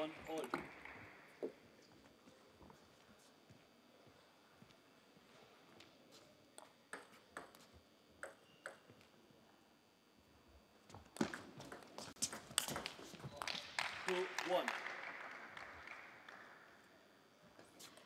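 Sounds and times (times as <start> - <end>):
table tennis ball clicking: 8.2 - 8.8.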